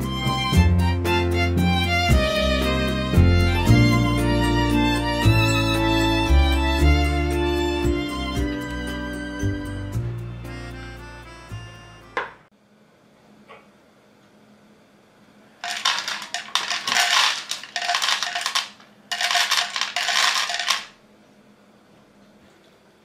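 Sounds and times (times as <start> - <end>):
kibble clattering into plastic bowl: 15.6 - 20.9.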